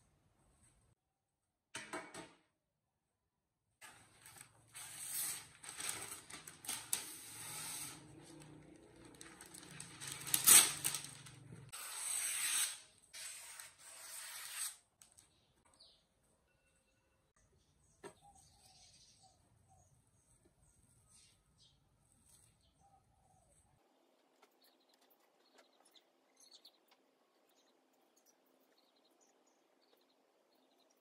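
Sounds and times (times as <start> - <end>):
baking paper rustling and crinkling: 3.8 - 11.7.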